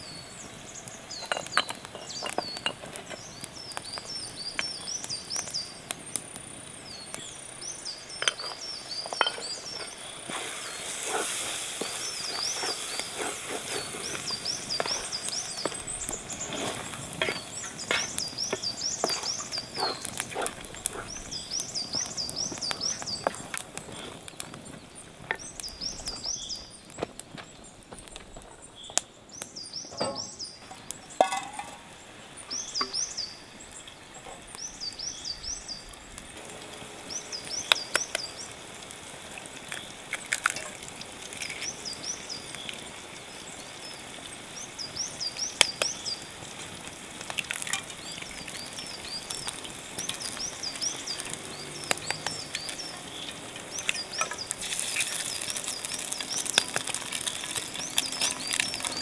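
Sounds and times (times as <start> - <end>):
eggs frying hiss: 0.0 - 59.0
songbird whistled calls: 11.8 - 23.4.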